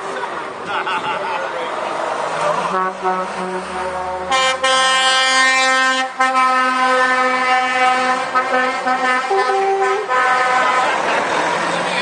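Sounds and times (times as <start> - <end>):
lorry air horn blast: 2.7 - 10.9.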